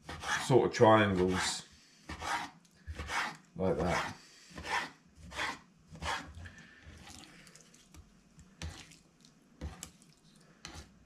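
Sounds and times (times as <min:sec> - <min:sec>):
knife cutting on wooden board: 0:00.0 - 0:00.5, 0:02.1 - 0:06.4, 0:09.6 - 0:10.0, 0:10.6 - 0:10.9.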